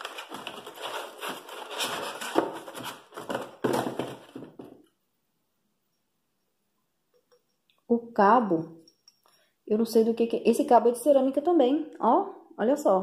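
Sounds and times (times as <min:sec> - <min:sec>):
paper and cardboard rustling: 0:00.0 - 0:04.8.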